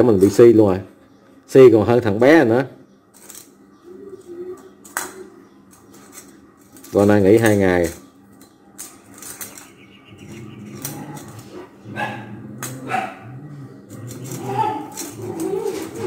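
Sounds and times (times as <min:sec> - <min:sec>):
dog growling low: 0:10.1 - 0:16.0.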